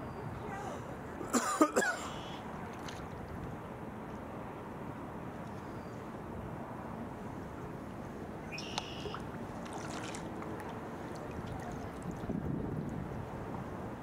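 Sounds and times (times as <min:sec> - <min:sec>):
paddle blades dipping: 0:02.4 - 0:04.4, 0:05.4 - 0:14.0
water sloshing against kayak hull: 0:08.8 - 0:13.6.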